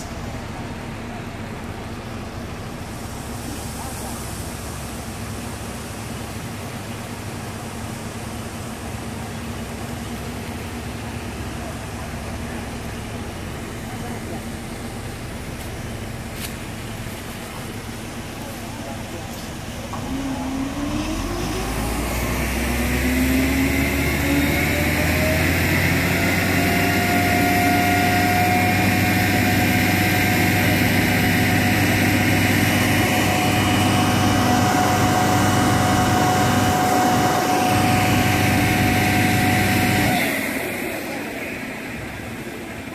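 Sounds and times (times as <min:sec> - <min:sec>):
turbine whine: 0:00.0 - 0:42.9
rush of air and mist: 0:02.4 - 0:08.1.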